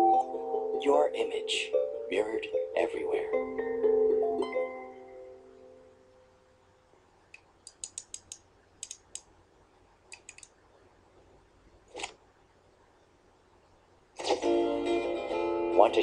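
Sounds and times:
music: 0:00.0 - 0:06.4, 0:14.2 - 0:16.0.

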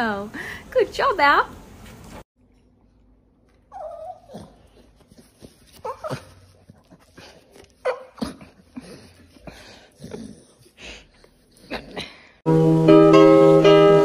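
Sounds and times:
dog whining: 0:03.7 - 0:04.9.

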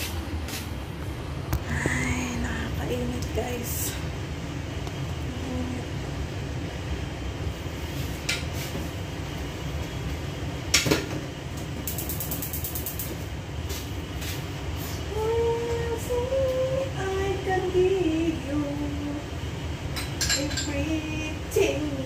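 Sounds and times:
steady low hum: 0:00.0 - 0:22.0
woman humming: 0:05.3 - 0:06.0, 0:15.1 - 0:19.0
cookware clanking: 0:20.0 - 0:20.8.

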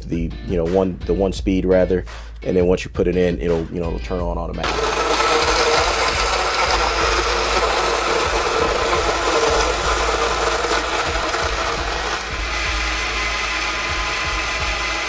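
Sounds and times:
blender whirring: 0:04.6 - 0:15.0.

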